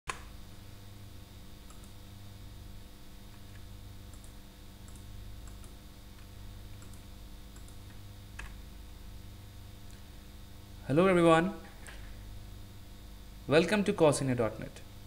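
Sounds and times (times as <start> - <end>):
low electrical hum and hiss: 0.1 - 15.0
computer mouse clicks: 1.6 - 2.0, 3.3 - 8.6.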